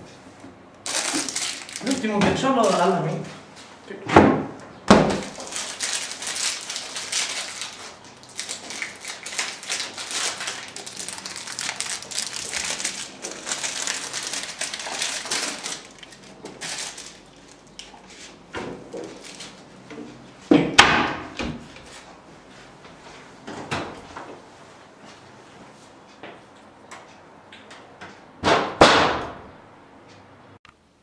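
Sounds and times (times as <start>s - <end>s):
plastic wrapper crinkling: 0.8s - 2.9s, 5.2s - 18.1s, 19.0s - 19.6s.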